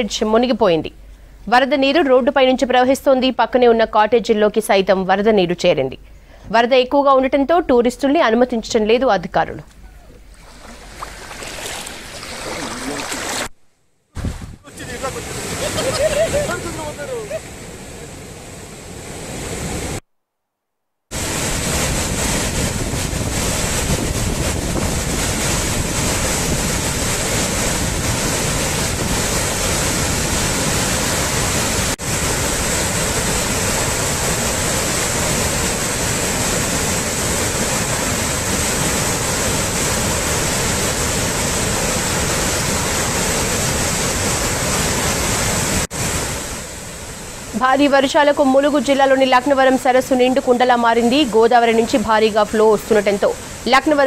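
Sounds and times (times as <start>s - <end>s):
floodwater rushing: 9.7s - 13.5s, 14.2s - 18.3s, 21.1s - 54.0s
wind buffeting microphone: 14.2s - 14.7s, 21.2s - 31.7s.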